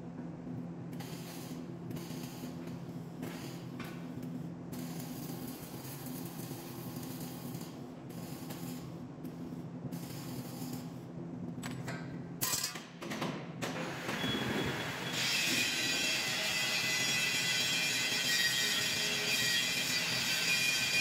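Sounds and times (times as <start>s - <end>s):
arc welding crackling hiss: 1.0s - 3.8s, 4.7s - 11.0s.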